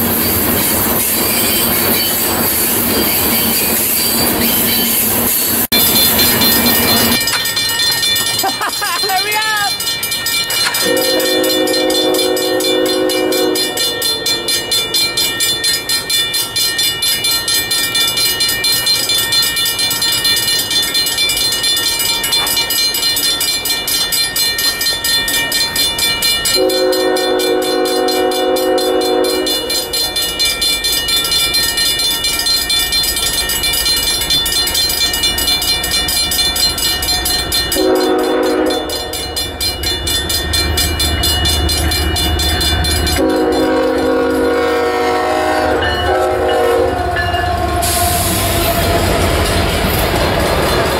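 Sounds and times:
crossing bell ringing: 0:00.0 - 0:50.9
train rumble: 0:00.0 - 0:50.9
train air horn blasts: 0:10.8 - 0:14.6, 0:26.6 - 0:30.0, 0:37.8 - 0:39.2, 0:43.2 - 0:49.5.

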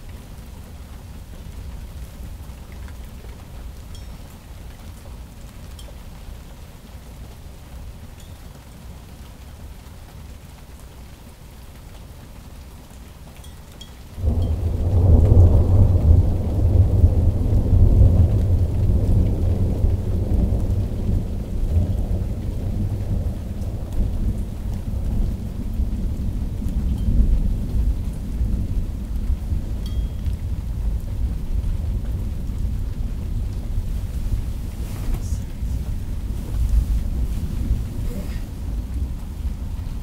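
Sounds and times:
steady rain: 0:00.0 - 0:40.0
thunder crack and rumble: 0:14.2 - 0:40.0.

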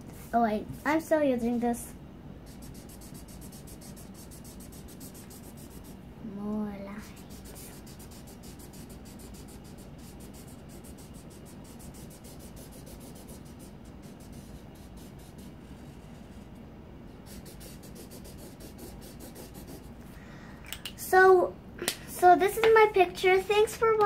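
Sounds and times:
marker rubbing on paper: 0:02.4 - 0:06.0, 0:07.0 - 0:16.4, 0:17.3 - 0:19.9.

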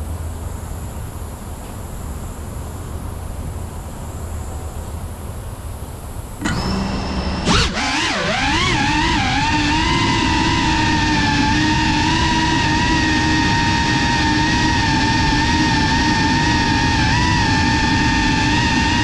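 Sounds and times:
drone motors whining: 0:06.4 - 0:19.0
drone propeller rush: 0:06.4 - 0:19.0.

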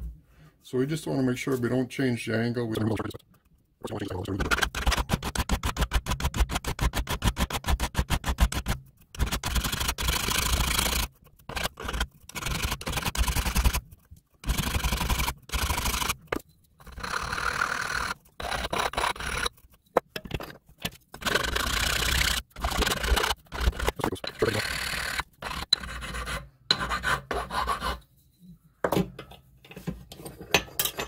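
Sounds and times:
hand file rasping on metal: 0:21.2 - 0:28.0.

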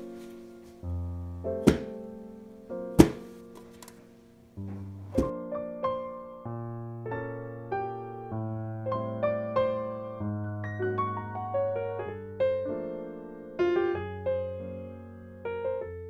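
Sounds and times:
soft piano music: 0:00.0 - 0:16.0
baking sheet knocking on counter: 0:01.6 - 0:01.9, 0:03.0 - 0:03.3.

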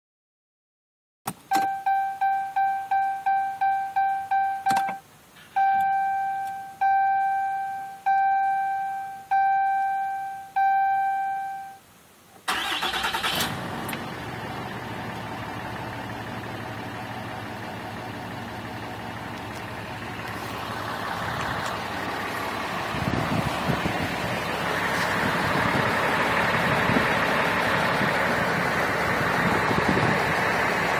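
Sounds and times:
dashboard warning chime: 0:01.5 - 0:05.0, 0:05.6 - 0:11.8
diesel engine cranking and idling: 0:12.4 - 0:30.9.

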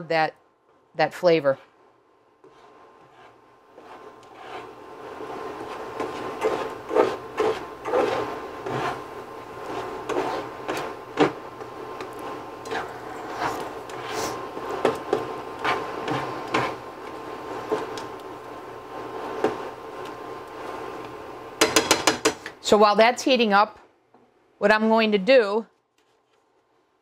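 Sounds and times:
steady low hum: 0:00.0 - 0:21.6
spatula scraping in skillet: 0:02.4 - 0:20.9.

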